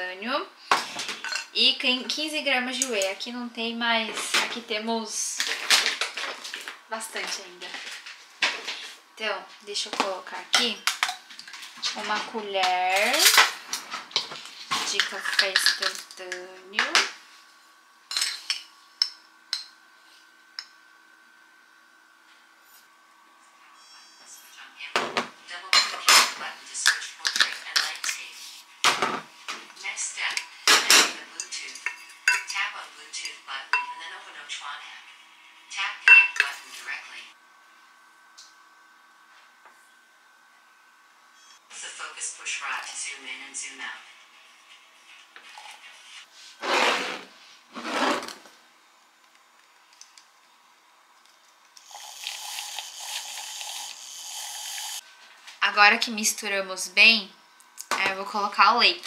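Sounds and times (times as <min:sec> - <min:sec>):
glasses and spoon clinking on counter: 0:30.4 - 0:32.6, 0:33.2 - 0:34.0, 0:36.1 - 0:36.6
milk frother whirring: 0:51.7 - 0:55.1.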